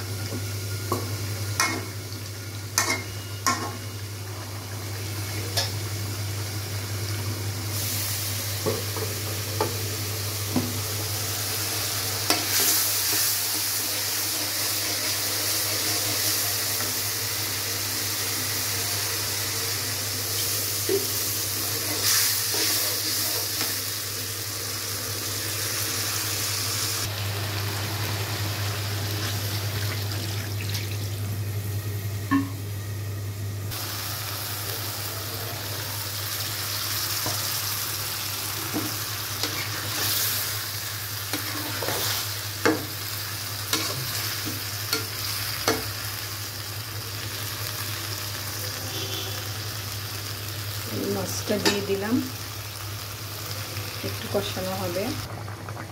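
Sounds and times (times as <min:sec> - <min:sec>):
spices sizzling in a wok: 0:00.0 - 0:55.9
metal spatula scraping a pan: 0:41.4 - 0:42.3.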